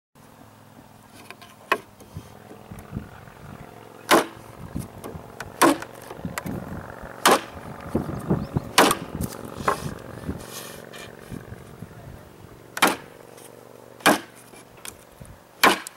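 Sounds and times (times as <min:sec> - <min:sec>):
hatchet chopping wood: 0:04.1 - 0:04.4, 0:05.0 - 0:06.2, 0:07.2 - 0:07.6, 0:08.7 - 0:09.9, 0:12.8 - 0:13.1, 0:14.0 - 0:14.5, 0:15.6 - 0:15.9.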